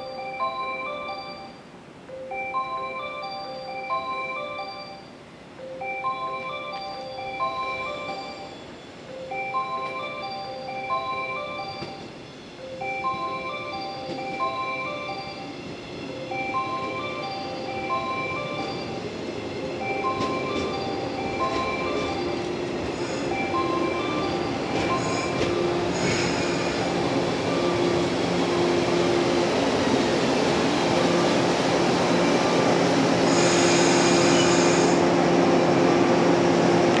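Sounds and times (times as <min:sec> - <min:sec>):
bell-like chime melody: 0:00.0 - 0:29.5
train low hum: 0:00.0 - 0:37.0
train wheels rumbling: 0:11.2 - 0:37.0.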